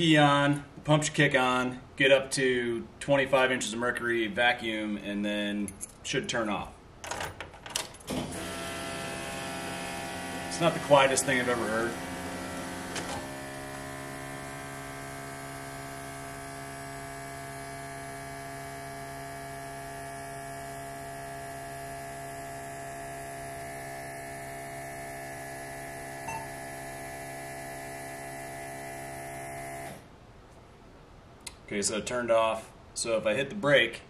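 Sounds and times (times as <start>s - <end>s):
electric vacuum pump humming: 8.1s - 30.1s.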